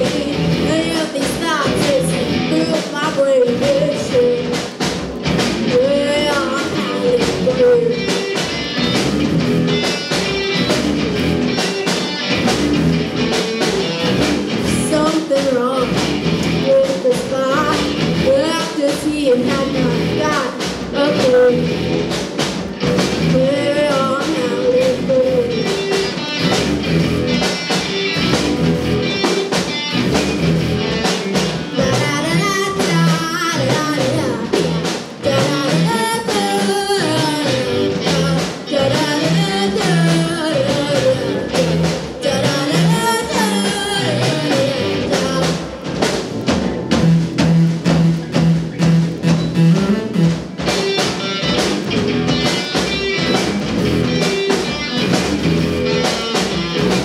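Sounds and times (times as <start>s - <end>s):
woman singing: 0.0s - 4.7s, 5.6s - 8.2s, 14.7s - 16.0s, 16.6s - 21.8s, 23.3s - 25.7s, 31.7s - 45.9s
bass guitar: 0.0s - 57.0s
drum kit: 0.0s - 57.0s
electric guitars: 0.0s - 57.0s.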